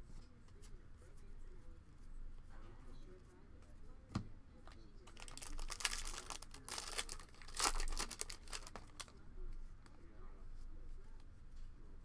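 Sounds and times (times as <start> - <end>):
crackling rips: 5.1 - 9.1
foil wrapper tearing and crinkling: 5.1 - 9.1.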